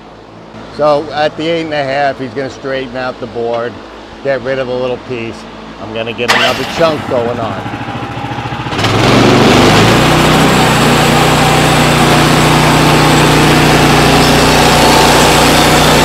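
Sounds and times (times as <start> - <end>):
gas engine revving: 5.8 - 16.0
band saw cutting wood: 6.3 - 7.7, 8.7 - 16.0.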